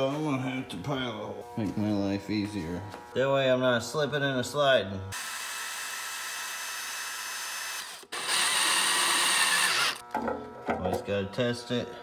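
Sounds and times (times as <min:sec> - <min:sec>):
power drill boring plastic pipe: 0:05.1 - 0:10.0.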